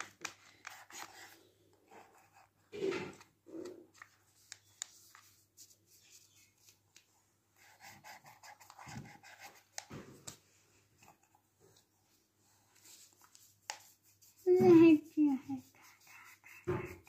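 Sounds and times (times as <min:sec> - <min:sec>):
paintbrushes scrubbing in palette: 0:12.8 - 0:17.0.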